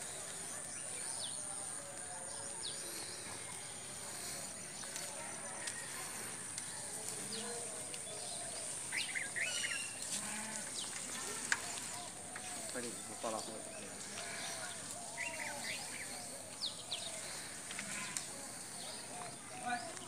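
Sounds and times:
birds chirping: 0:00.0 - 0:20.0
distant voices murmuring: 0:00.0 - 0:20.0.

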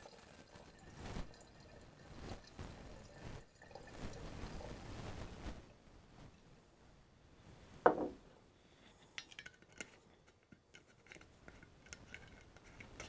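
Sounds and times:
knock on counter: 0:07.9 - 0:08.2.

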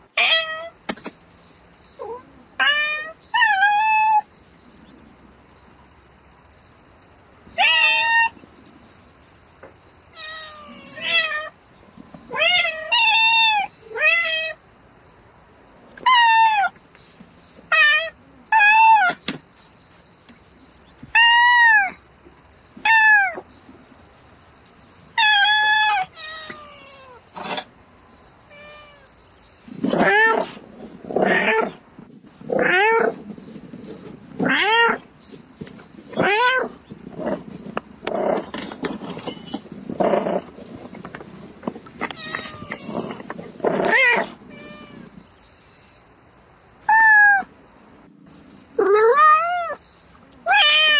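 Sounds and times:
cat meowing: 0:00.2 - 0:00.7, 0:07.6 - 0:08.4, 0:21.1 - 0:22.0, 0:22.8 - 0:23.4, 0:25.2 - 0:27.2, 0:34.4 - 0:35.0, 0:42.0 - 0:45.2, 0:46.9 - 0:47.5, 0:48.8 - 0:49.8, 0:50.4 - 0:50.9.

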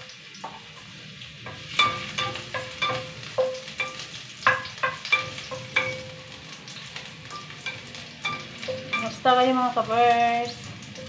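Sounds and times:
faint sizzle of sauteing: 0:00.0 - 0:11.0
spatula knocking metal pan: 0:01.4 - 0:06.4, 0:07.3 - 0:09.2
pan ringing: 0:01.5 - 0:06.5, 0:07.1 - 0:10.3.

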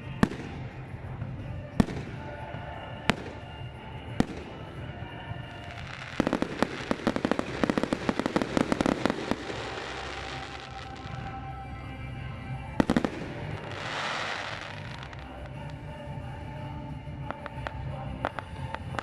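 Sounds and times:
firework bangs: 0:00.0 - 0:11.5, 0:12.8 - 0:15.8, 0:17.2 - 0:19.0
firework crackling pops: 0:01.8 - 0:02.4, 0:05.5 - 0:11.4, 0:12.8 - 0:15.8, 0:17.2 - 0:19.0.

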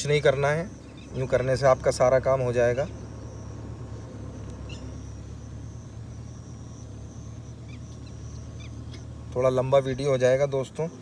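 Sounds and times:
faint high steady tone: 0:00.0 - 0:10.7
low outdoor rumble: 0:00.0 - 0:11.0.

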